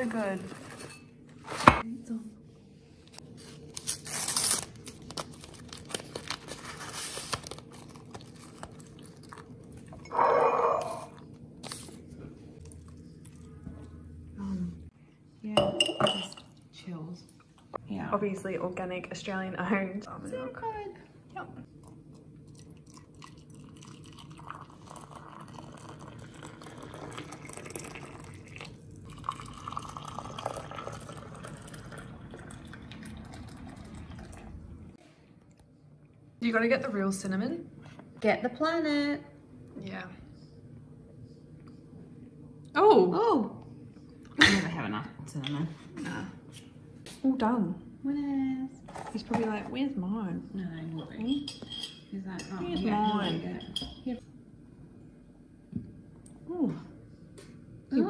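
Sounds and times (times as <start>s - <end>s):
paper sachet crinkling: 3.7s - 8.8s
water pouring into mugs: 21.8s - 34.6s.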